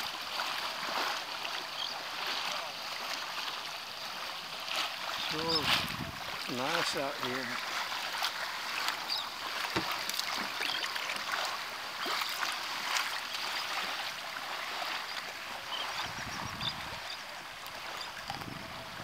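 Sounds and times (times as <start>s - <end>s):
water lapping against boat hull: 0.0s - 19.0s
water drips: 8.2s - 13.6s.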